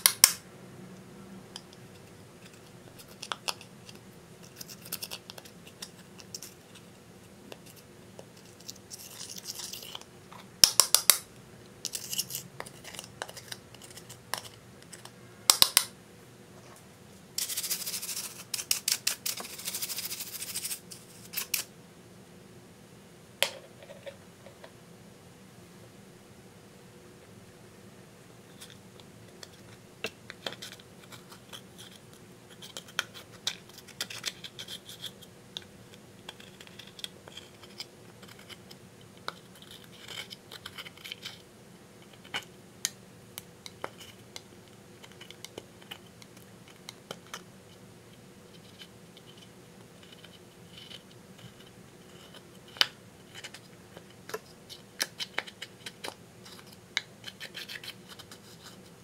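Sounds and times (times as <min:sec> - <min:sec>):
sharp little clicks and taps: 0:10.6 - 0:11.4, 0:14.3 - 0:15.9.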